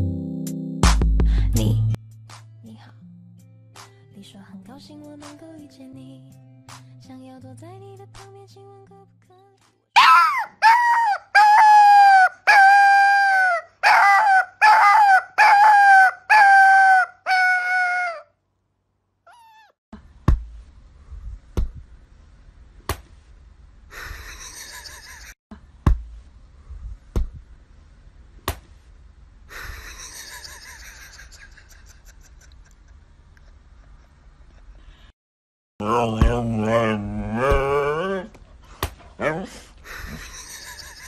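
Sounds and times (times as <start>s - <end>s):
puppy howling: 10.0s - 18.3s, 35.8s - 38.3s.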